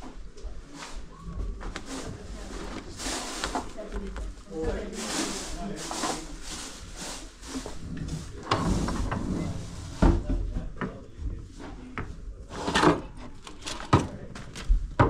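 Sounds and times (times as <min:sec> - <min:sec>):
objects rustling: 0:00.0 - 0:15.0
objects knocking and clunking: 0:07.6 - 0:15.0.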